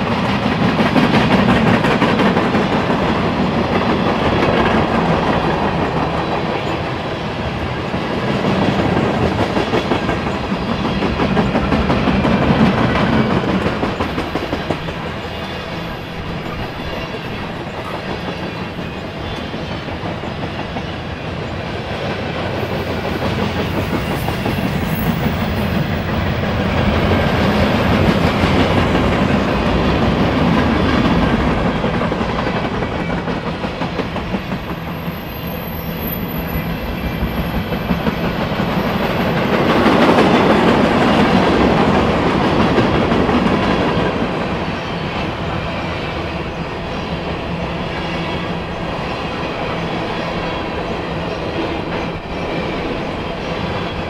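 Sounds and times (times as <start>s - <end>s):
train wheels clicking over rail joints: 0.0s - 6.8s, 7.8s - 20.9s, 21.9s - 44.7s.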